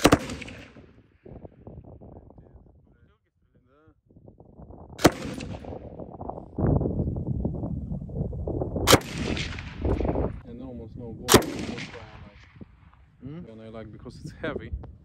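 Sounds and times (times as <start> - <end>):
machine gun shots: 0.0 - 0.8.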